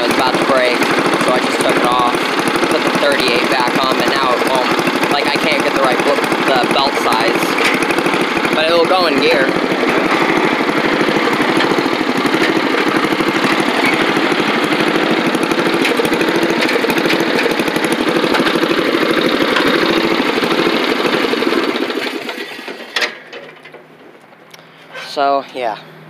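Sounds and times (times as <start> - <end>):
lawn mower engine running: 0.0 - 26.0
clunk: 22.3 - 25.2.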